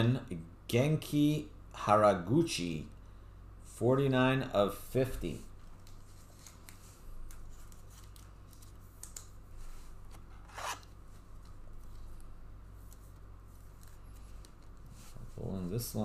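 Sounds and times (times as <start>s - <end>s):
trading cards rustling: 5.8s - 12.2s.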